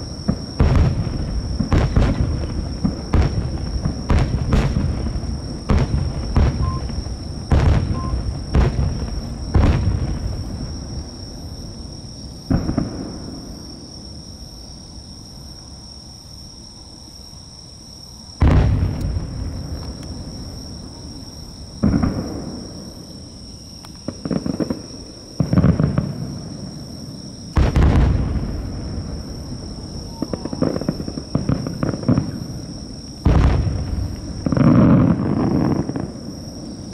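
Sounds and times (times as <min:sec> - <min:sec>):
firework shells booming: 0:00.0 - 0:11.8, 0:12.4 - 0:13.8, 0:18.4 - 0:23.2, 0:23.9 - 0:26.9, 0:27.5 - 0:36.4
small firework pops: 0:00.2 - 0:10.4, 0:12.5 - 0:13.5, 0:18.4 - 0:20.2, 0:21.8 - 0:22.7, 0:23.8 - 0:26.3, 0:27.5 - 0:28.6, 0:30.1 - 0:32.4, 0:33.2 - 0:36.2.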